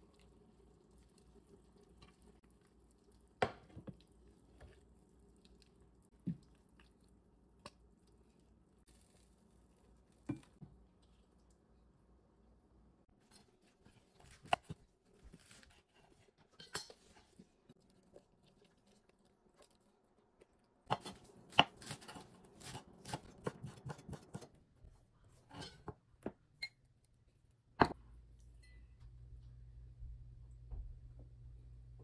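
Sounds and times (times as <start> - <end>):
low hum: 28.0 - 32.0.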